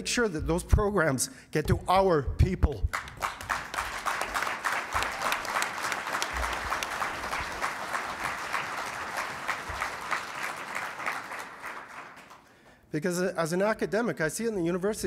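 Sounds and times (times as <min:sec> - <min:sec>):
audience applauding: 0:02.9 - 0:12.7.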